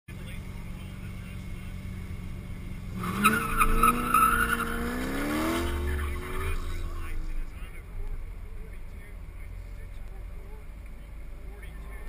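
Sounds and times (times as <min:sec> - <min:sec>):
car engine revving: 0:00.1 - 0:12.0
car idling with low rumble: 0:00.1 - 0:12.0
tire squeal: 0:03.0 - 0:07.1.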